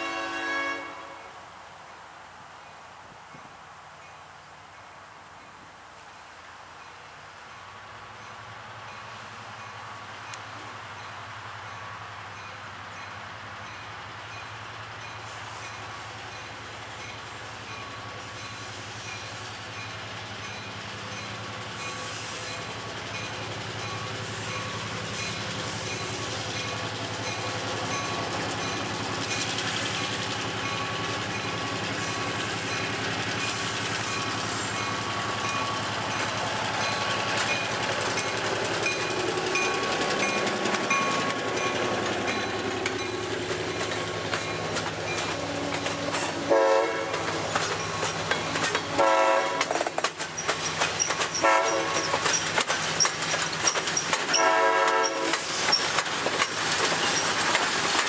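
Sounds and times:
diesel locomotive engine: 3.8s - 58.0s
wheels clicking over rail joints: 19.7s - 58.0s.

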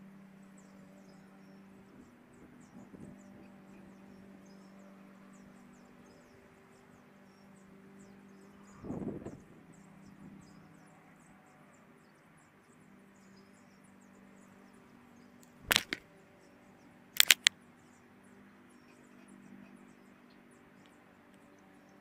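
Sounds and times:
quick clicks: 15.4s - 16.0s, 17.2s - 17.5s.

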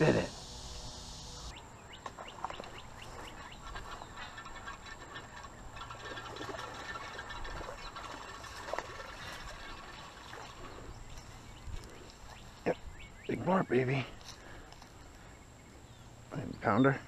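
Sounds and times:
bird chirps: 0.0s - 14.2s
soft steady hiss: 0.0s - 17.0s.

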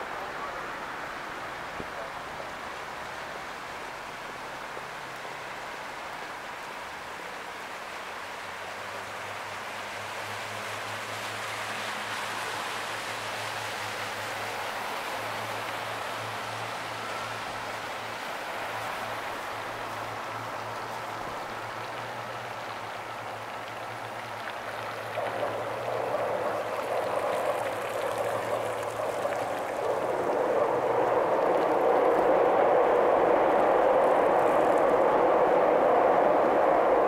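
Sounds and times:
steady rushing hiss: 0.0s - 37.0s
boat engine droning: 10.2s - 37.0s.

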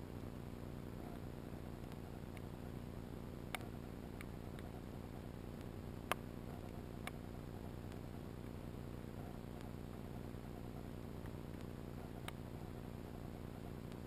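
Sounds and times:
faint low underwater rumble and hiss: 0.0s - 14.0s.

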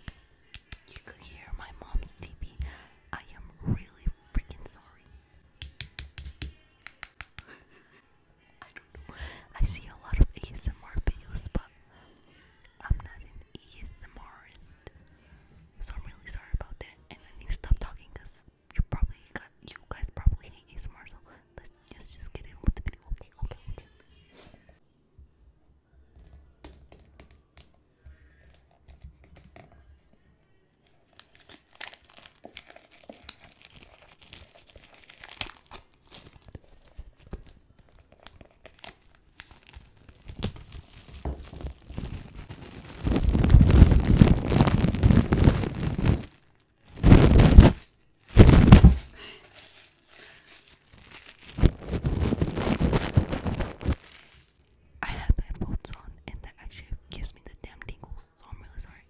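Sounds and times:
packaging crinkling and tearing: 31.1s - 54.6s.

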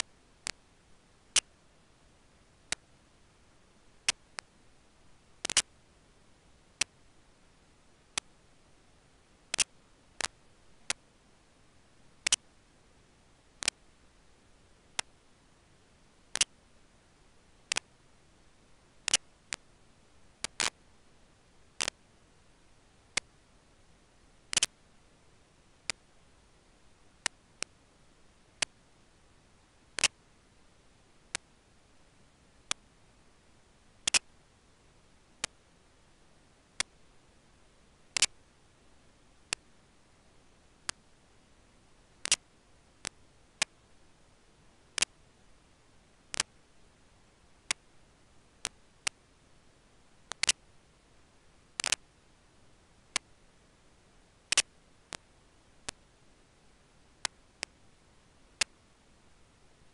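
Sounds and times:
faint hiss: 0.0s - 59.9s
sharp single clicks: 5.4s - 5.7s, 16.3s - 16.6s, 19.1s - 19.3s, 24.5s - 24.7s, 34.0s - 34.3s, 38.2s - 38.4s, 42.2s - 42.4s, 50.3s - 50.6s, 51.8s - 52.0s, 54.5s - 55.2s.

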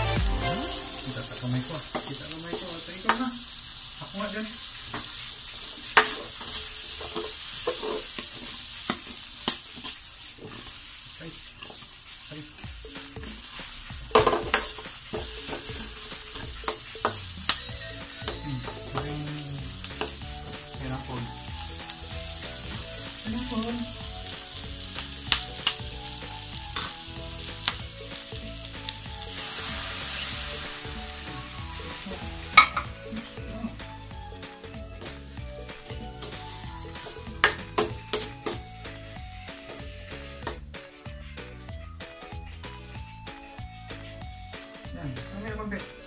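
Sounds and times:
vegetables sizzling in a wok: 0.0s - 46.0s
metal ladle scraping a pan: 6.0s - 9.2s, 31.8s - 32.9s.

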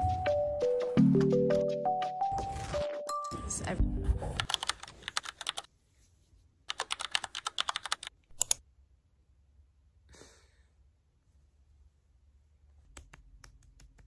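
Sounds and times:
typing on keyboard: 4.4s - 5.7s, 6.7s - 8.6s.

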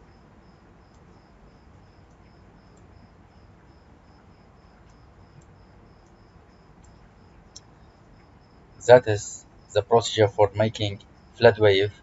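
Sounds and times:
faint background hum: 0.0s - 12.0s.

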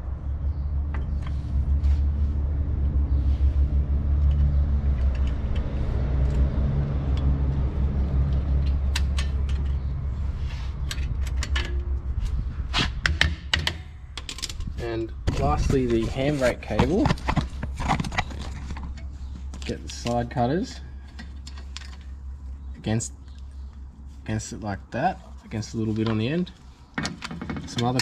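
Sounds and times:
engine rumbling: 0.0s - 28.0s
metallic clicks of brake parts: 4.2s - 10.1s, 10.7s - 12.4s.

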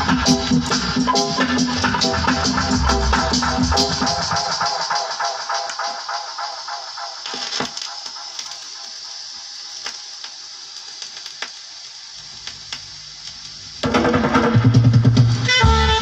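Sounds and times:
reggae music with heavy bass: 0.0s - 8.9s, 13.8s - 16.0s
vinyl record crackle and hiss: 0.0s - 16.0s.

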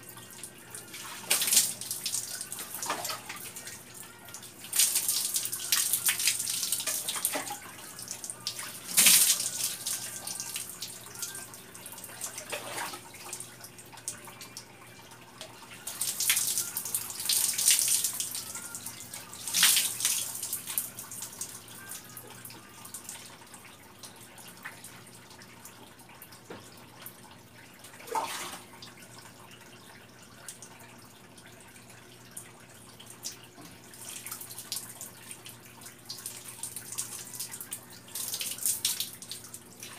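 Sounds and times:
water splashing on concrete floor: 8.9s - 9.7s.

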